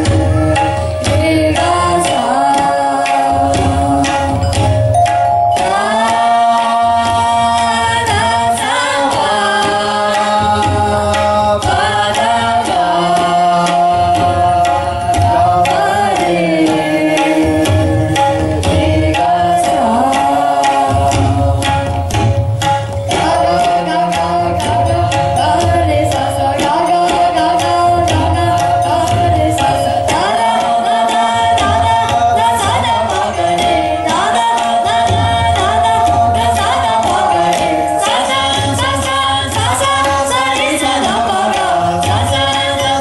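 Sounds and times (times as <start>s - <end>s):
melodic accompaniment with sliding notes: 0.0s - 43.0s
tabla playing: 0.0s - 43.0s.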